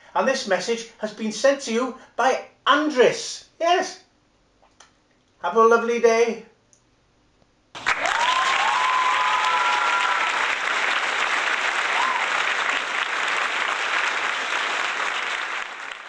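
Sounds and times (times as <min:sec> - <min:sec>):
crowd applauding and cheering: 0:07.8 - 0:16.0.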